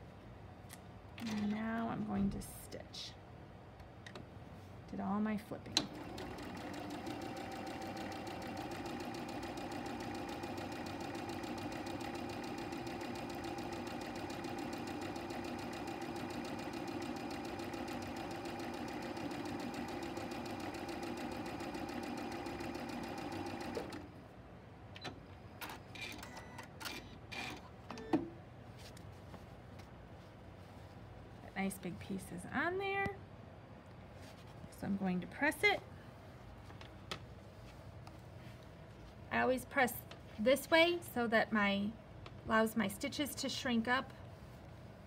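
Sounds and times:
sewing machine stitching: 0:05.8 - 0:24.0.

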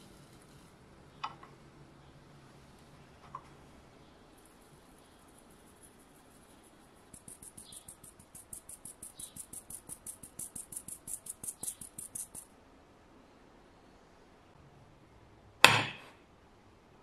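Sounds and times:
powder sifting through sieve: 0:00.0 - 0:00.9, 0:02.5 - 0:12.4.

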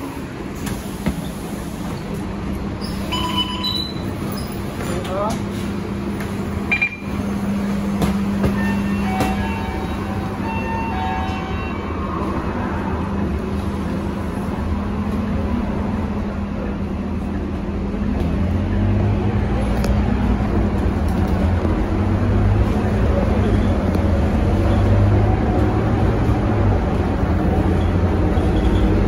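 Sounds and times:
diesel bus engine humming: 0:00.0 - 0:29.0
short electronic beeps: 0:06.7 - 0:07.1.

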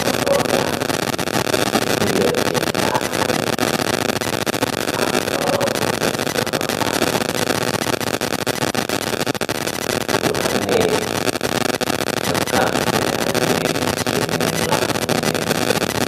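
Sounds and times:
man's voice faint: 0:00.0 - 0:01.0, 0:01.9 - 0:03.6, 0:04.9 - 0:07.4, 0:10.2 - 0:11.1, 0:12.3 - 0:15.8
loud hiss-like noise: 0:00.0 - 0:16.0.

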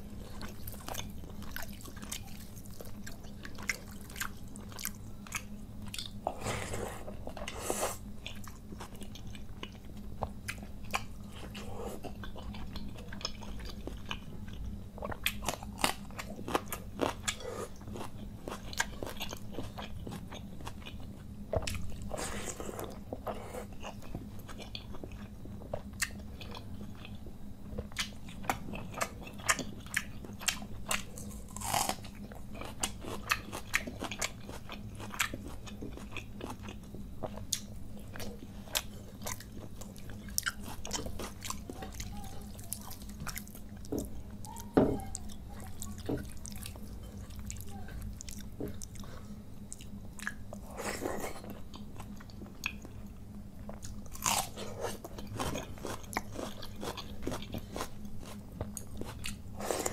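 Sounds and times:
faint low hum: 0:00.0 - 0:59.9
wet chewing and crunching: 0:00.0 - 0:59.9.

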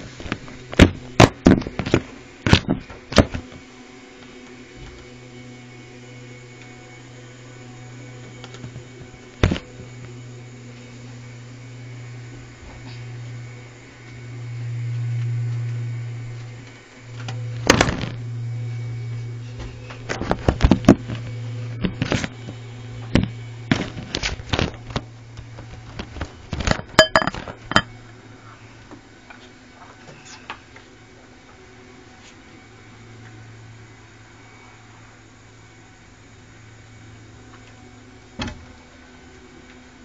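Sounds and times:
steady low hum: 0:06.4 - 0:28.9.

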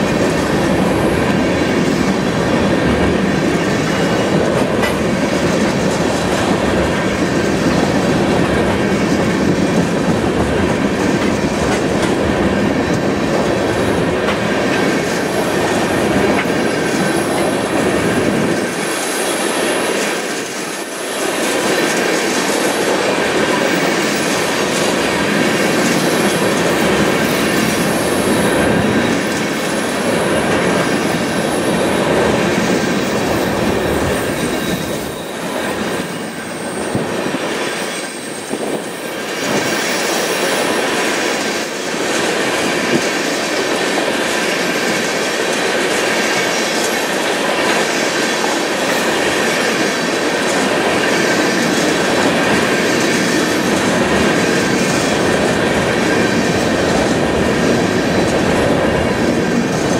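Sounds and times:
steel wheels on rail: 0:00.0 - 0:59.9
high wheel squeal: 0:33.0 - 0:40.9.

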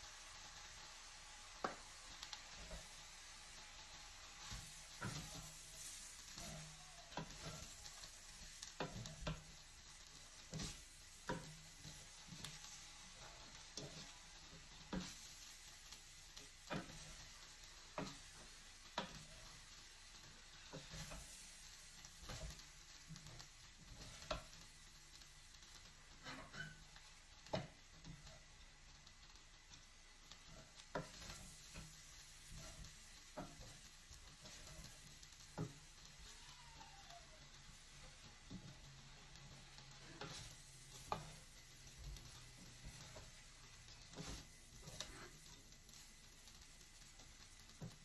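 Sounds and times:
faint sizzling: 0:00.0 - 0:48.0
wooden spoon scraping a pot: 0:04.4 - 0:15.7, 0:26.0 - 0:28.4, 0:30.4 - 0:36.4, 0:38.0 - 0:45.6.

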